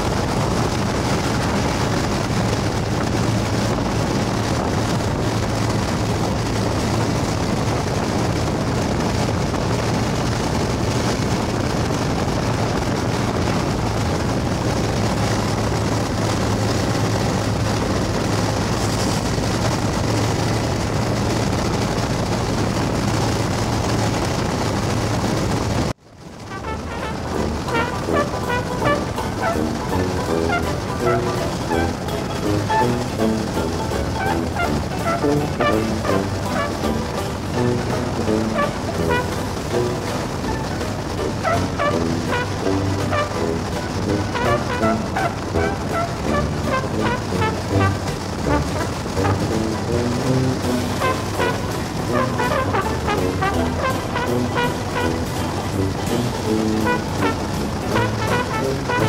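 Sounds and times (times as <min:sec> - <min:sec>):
motorcycle engine humming: 0:00.0 - 0:59.0
wind rush on microphone: 0:00.0 - 0:59.0
music: 0:26.5 - 0:59.0.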